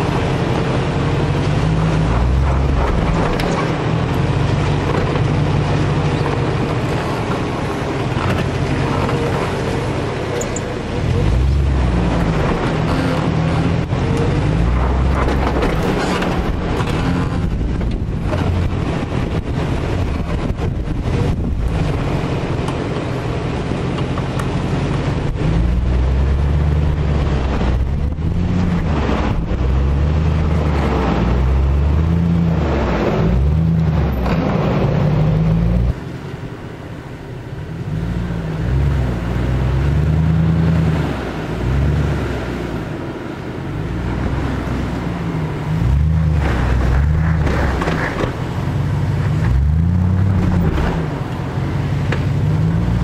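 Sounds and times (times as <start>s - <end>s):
car engine revving under load: 0.0s - 53.0s
wind on microphone: 10.9s - 23.9s.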